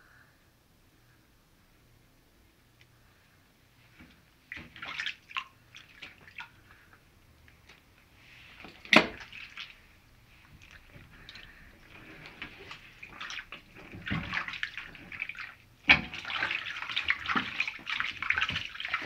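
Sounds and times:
water splashing in a glass dish: 8.6 - 9.8, 10.6 - 19.0.

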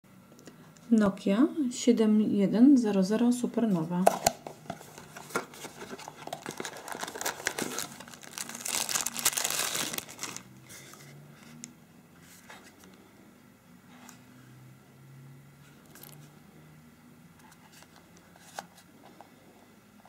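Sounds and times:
cardboard rustling: 4.7 - 10.9
plastic bag crinkling: 4.9 - 10.6.

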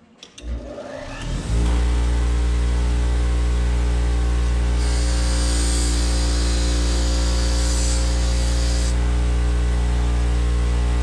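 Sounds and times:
bench grinder motor humming: 4.5 - 9.1.

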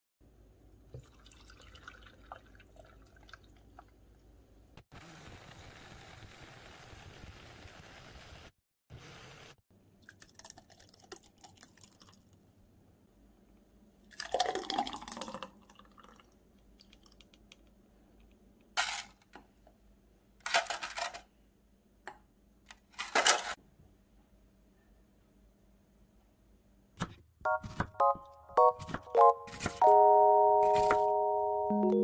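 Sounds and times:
thick juice pouring into glasses: 0.9 - 4.0, 10.0 - 12.4, 14.1 - 17.2.

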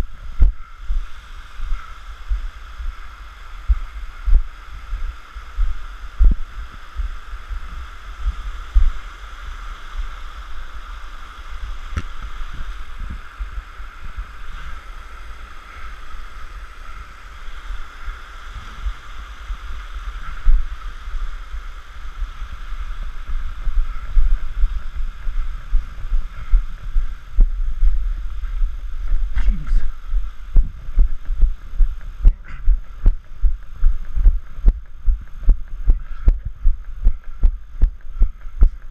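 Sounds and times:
stream and waterfall rushing: 0.0 - 32.2
running footsteps on wooden boardwalk: 22.8 - 38.9
running footsteps on stones: 23.3 - 38.9.

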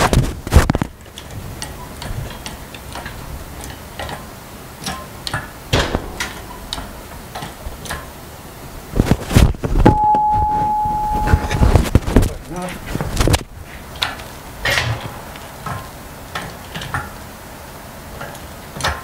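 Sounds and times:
heavy metal clunks: 5.7 - 8.1.

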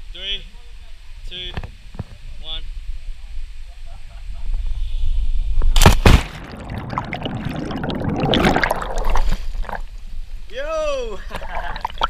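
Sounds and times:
loud splash into water: 5.8 - 9.9
muffled underwater bubbling: 6.4 - 10.0, 11.3 - 12.0.

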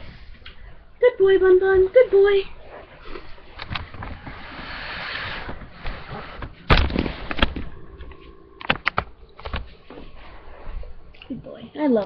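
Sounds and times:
sharp knocks and thumps: 6.4 - 10.0.

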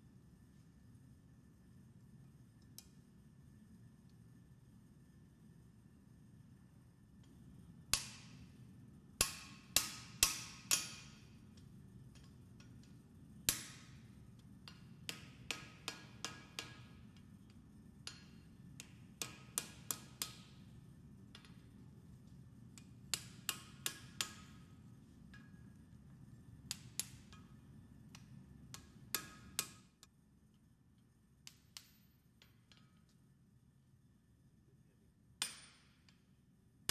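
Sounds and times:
steady low hum: 0.0 - 36.9
hammer striking steel on anvil: 9.2 - 11.3, 13.5 - 14.0, 14.7 - 16.9, 28.8 - 29.8.

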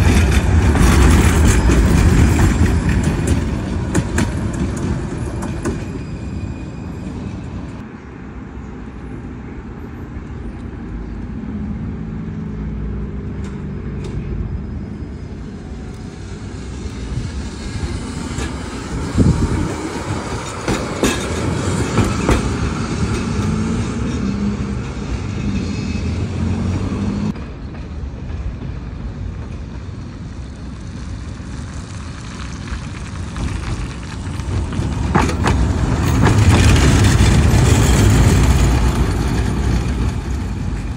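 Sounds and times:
wheels clacking over rail joints: 0.0 - 6.4, 15.9 - 40.9
tram hum: 0.0 - 40.9.

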